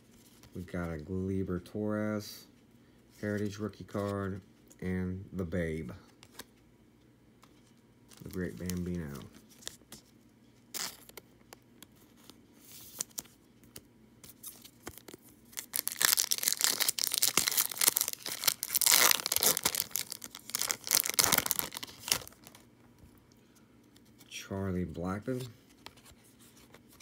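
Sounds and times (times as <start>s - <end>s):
foil wrapper tearing and crinkling: 10.7s - 11.2s, 14.4s - 22.6s.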